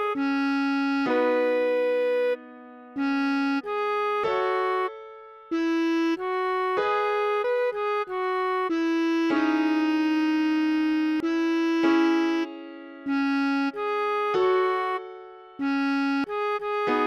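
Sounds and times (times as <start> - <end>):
bass clarinet melody: 0.0 - 17.0.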